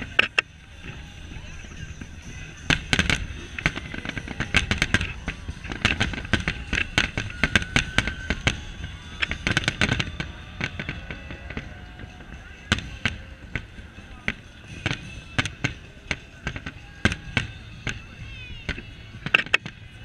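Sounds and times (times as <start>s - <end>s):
fireworks bursting: 0.0s - 20.0s.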